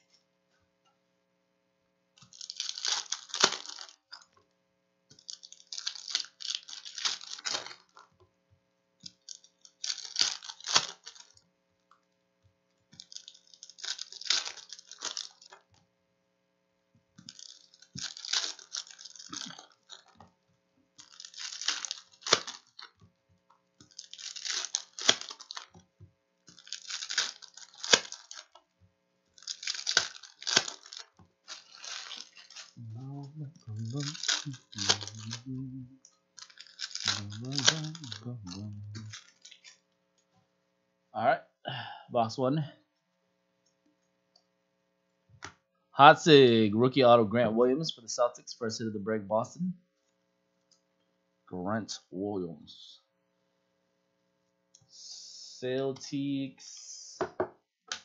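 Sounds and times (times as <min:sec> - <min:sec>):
foil packs torn and crinkled: 0:02.2 - 0:04.3, 0:05.2 - 0:08.1, 0:09.0 - 0:11.4, 0:13.0 - 0:15.6, 0:17.2 - 0:20.2, 0:21.0 - 0:23.0, 0:23.8 - 0:25.8, 0:26.5 - 0:28.6, 0:29.3 - 0:32.8, 0:33.8 - 0:35.5, 0:36.4 - 0:39.8.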